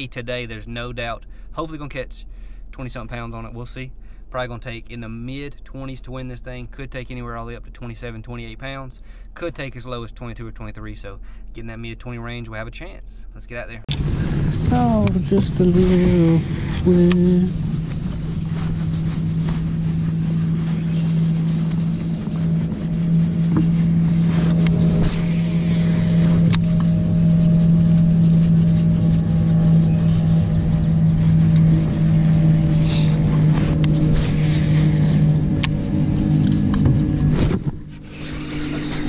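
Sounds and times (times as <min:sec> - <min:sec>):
boat motor humming: 0:13.9 - 0:39.0.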